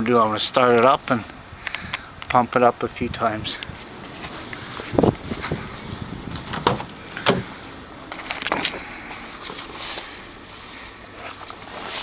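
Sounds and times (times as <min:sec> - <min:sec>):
light rustling: 0:03.5 - 0:12.0.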